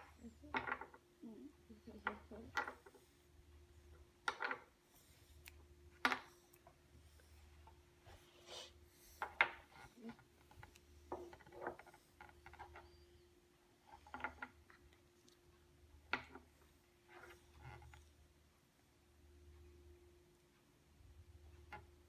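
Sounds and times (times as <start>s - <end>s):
wooden blocks knocking: 0.0s - 1.0s, 2.0s - 2.9s, 4.2s - 4.7s, 6.0s - 6.3s
wooden blocks rubbing: 6.0s - 13.2s, 13.8s - 14.9s.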